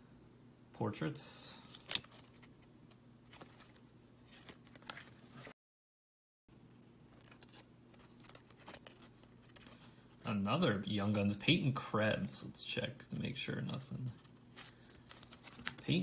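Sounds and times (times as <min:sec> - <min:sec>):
cards being flipped through: 0:01.6 - 0:05.5, 0:06.7 - 0:10.2, 0:14.2 - 0:16.0.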